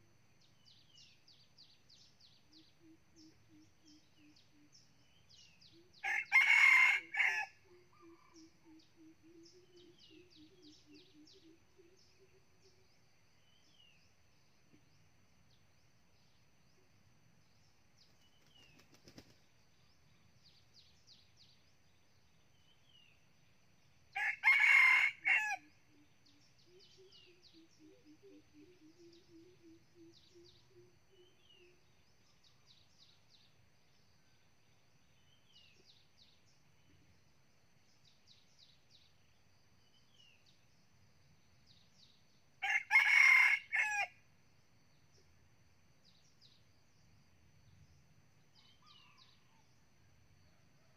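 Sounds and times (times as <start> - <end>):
rooster crowing: 6.0 - 7.6, 24.2 - 25.7, 42.6 - 44.2.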